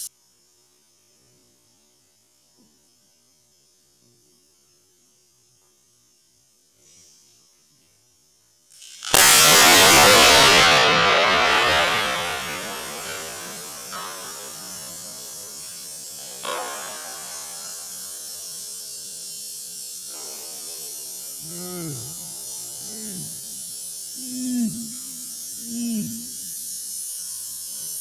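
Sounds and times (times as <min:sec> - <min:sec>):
slowed tire burst air rush: 0:09.1 - 0:18.8.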